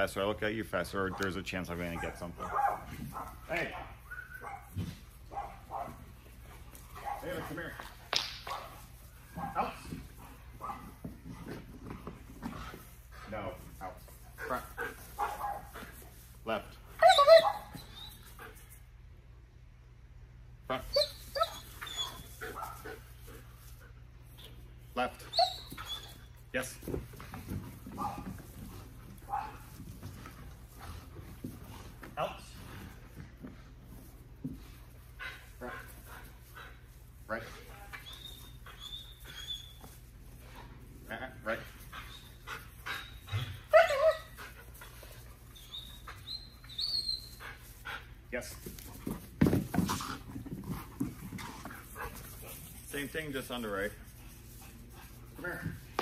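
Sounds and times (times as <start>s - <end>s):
dog whining and yipping: 4.0s - 4.6s, 17.0s - 18.5s, 20.8s - 22.8s, 25.2s - 26.4s, 37.9s - 40.0s, 41.9s - 47.6s.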